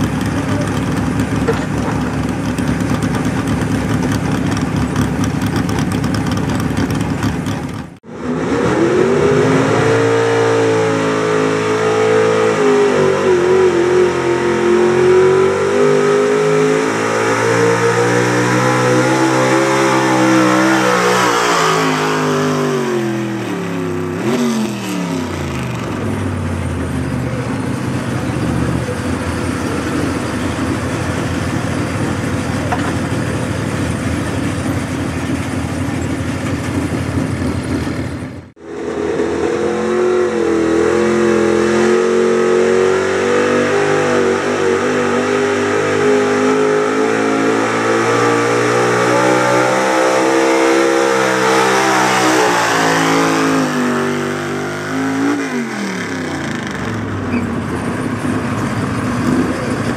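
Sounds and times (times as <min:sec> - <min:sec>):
low unsteady engine rumble: 0:00.0 - 0:08.0
pickup engine at high revs: 0:00.0 - 0:35.8, 0:36.4 - 0:59.9
another truck engine at high revs: 0:00.0 - 0:59.9.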